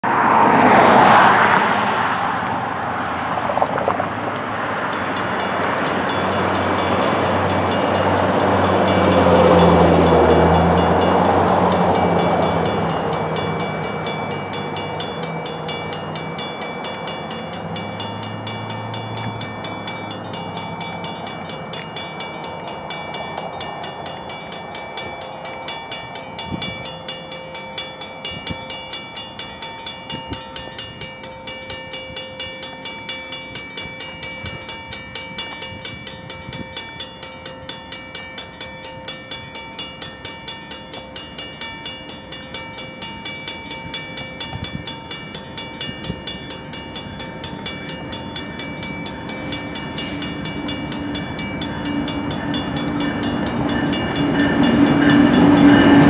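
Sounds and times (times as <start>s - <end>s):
vehicle passing loudly: 0.0s - 31.3s, 46.8s - 56.0s
crossing bells ringing: 0.0s - 56.0s.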